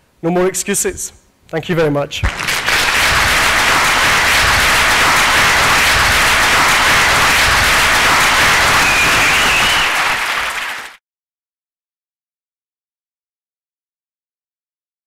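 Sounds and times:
audience applauding: 0:02.2 - 0:11.0.

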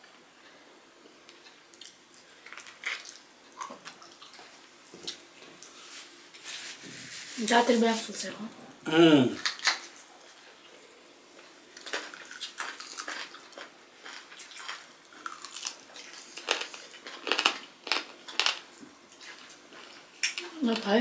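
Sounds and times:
people chewing with wet mouth clicks: 0:01.2 - 0:05.8, 0:11.8 - 0:20.9.

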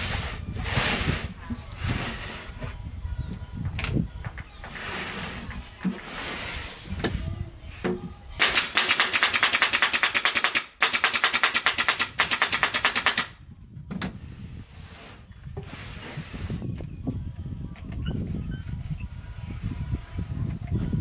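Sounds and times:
nail gun firing into wood: 0:08.4 - 0:13.4.

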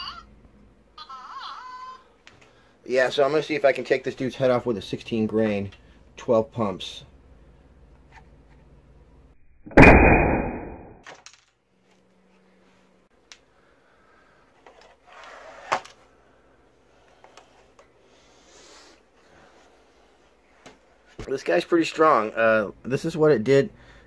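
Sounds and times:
air rifle firing: 0:09.7 - 0:10.9.

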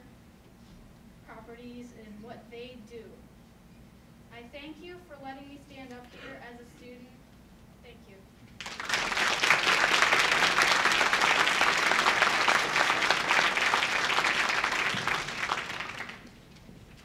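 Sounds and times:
audience applauding: 0:08.6 - 0:16.5.

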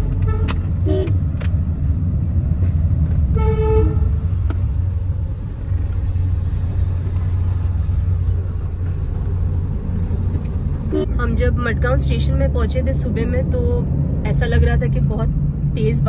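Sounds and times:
car engine and road rumble: 0:00.0 - 0:16.0
car horn toot: 0:00.2 - 0:01.2, 0:03.3 - 0:04.2, 0:10.9 - 0:11.1.

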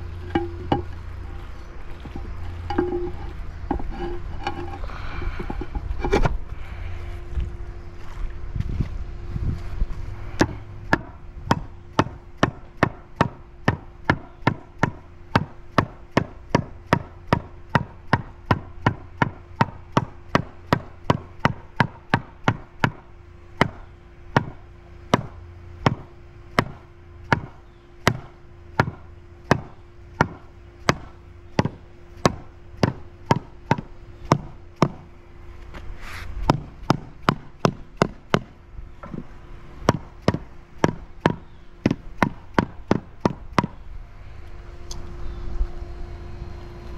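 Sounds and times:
mallet tapping stone paver: 0:10.4 - 0:23.0, 0:26.6 - 0:35.0, 0:36.5 - 0:38.5, 0:39.9 - 0:43.8.

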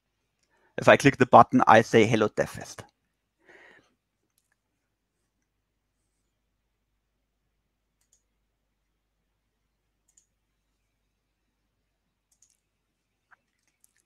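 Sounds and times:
computer mouse clicks: 0:04.2 - 0:04.6, 0:08.0 - 0:08.3, 0:10.0 - 0:10.4, 0:12.3 - 0:14.0.

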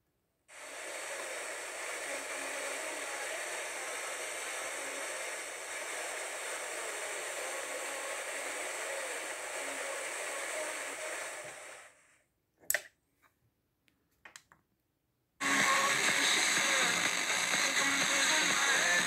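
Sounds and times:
radio static hiss: 0:00.5 - 0:12.1, 0:15.4 - 0:19.0.

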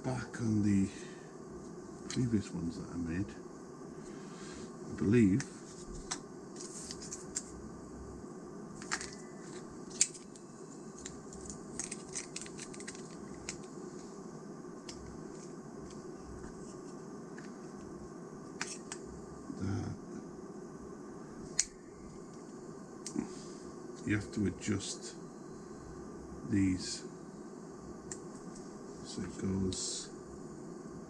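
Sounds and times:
low background hum: 0:00.0 - 0:31.0
plastic toy parts clicking: 0:11.0 - 0:13.7.

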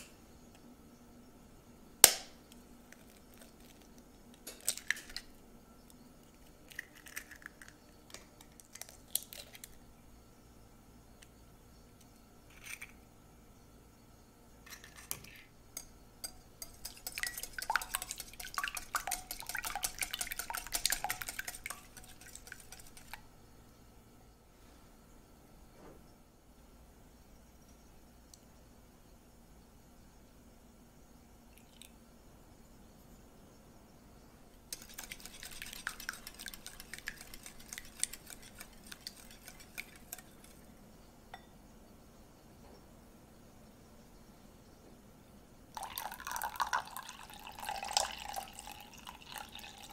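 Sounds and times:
whisk clicking against glass bowl: 0:15.8 - 0:23.2, 0:34.7 - 0:40.6.

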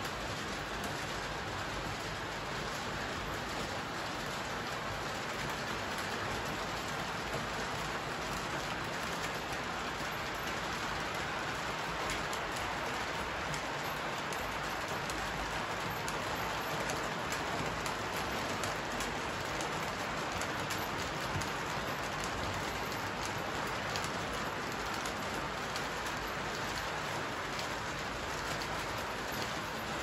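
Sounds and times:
model trains rumbling on track: 0:00.0 - 0:30.0.

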